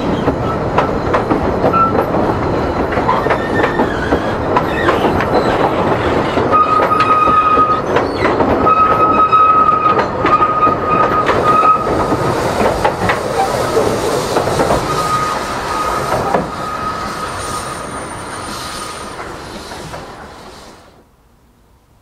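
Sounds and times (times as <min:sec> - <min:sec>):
train wheels clicking over rail joints: 0:00.0 - 0:21.0
high flange squeal: 0:01.7 - 0:12.2, 0:13.2 - 0:20.8.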